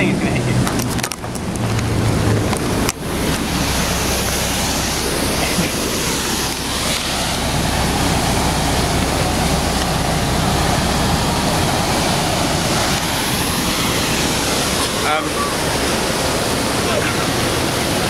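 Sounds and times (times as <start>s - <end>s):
bus engine and road noise: 0.0s - 18.0s
low engine hum: 0.0s - 18.0s.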